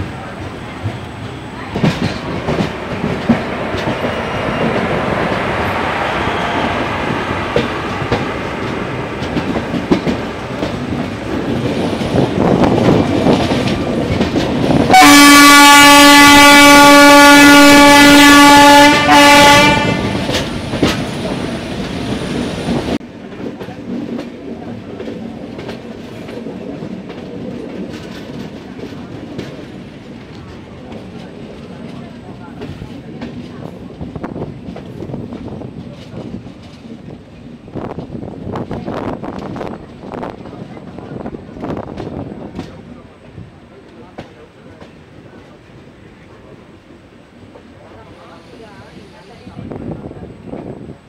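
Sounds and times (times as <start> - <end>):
train wheels clattering on rails: 0.0 - 43.2, 43.8 - 46.2
locomotive horn blasts: 14.9 - 20.3.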